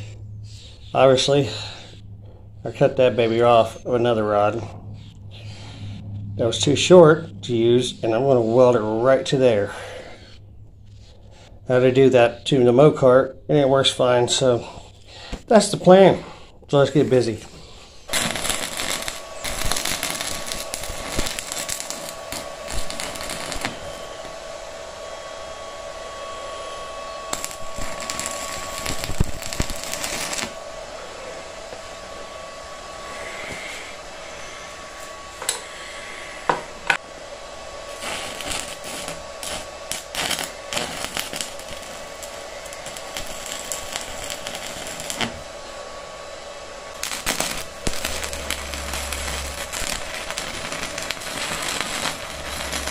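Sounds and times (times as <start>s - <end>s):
welding arc crackling: 18.1s - 24.8s, 27.3s - 30.6s, 37.9s - 45.8s, 46.9s - 52.9s.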